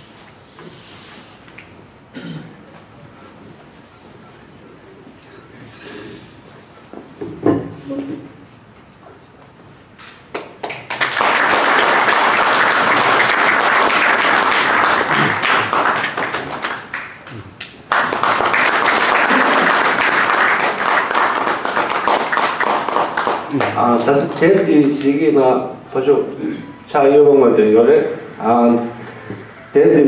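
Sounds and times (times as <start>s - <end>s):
audience applauding: 10.3s - 25.2s.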